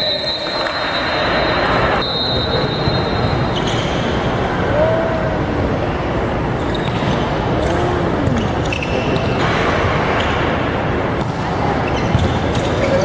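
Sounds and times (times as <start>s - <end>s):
shoe squeaks: 0.0s - 4.2s, 6.6s - 7.4s, 8.3s - 9.6s, 11.8s - 13.0s
sports hall ambient noise: 0.0s - 13.0s.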